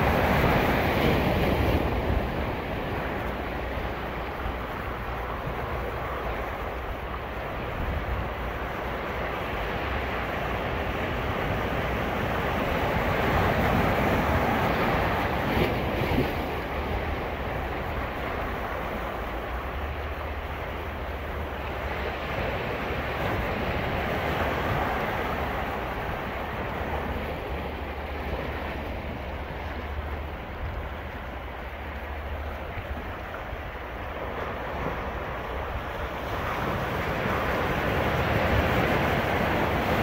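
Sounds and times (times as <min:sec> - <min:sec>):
waves washing on beach: 0:00.0 - 0:40.0.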